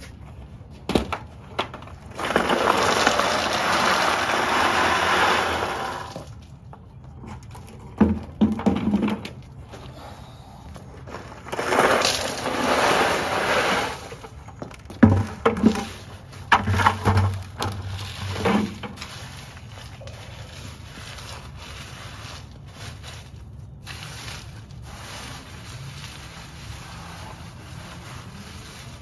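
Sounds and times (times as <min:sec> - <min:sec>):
stones poured rattling: 0:02.0 - 0:06.5, 0:11.1 - 0:29.0.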